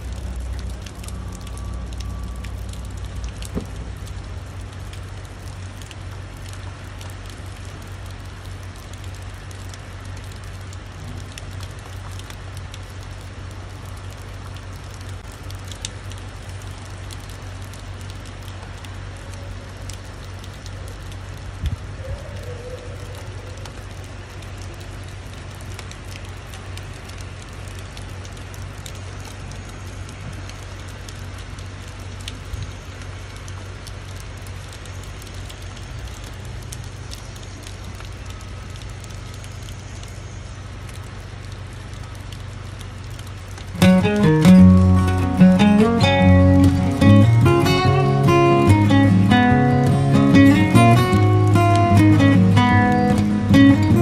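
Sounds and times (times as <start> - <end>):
steady low hum: 0.0 - 11.9
drops ticking: 0.0 - 21.8, 23.6 - 54.0
steady rain falling: 0.0 - 54.0.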